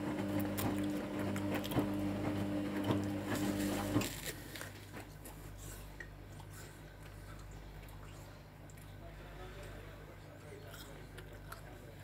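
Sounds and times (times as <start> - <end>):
washing machine motor hum: 0.0 - 4.2.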